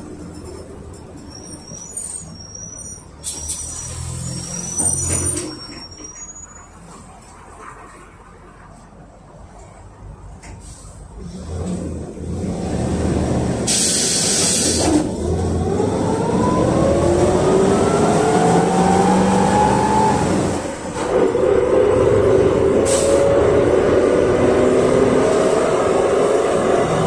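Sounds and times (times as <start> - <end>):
bus engine accelerating: 10.4 - 27.0
compressed air hiss: 13.7 - 15.0.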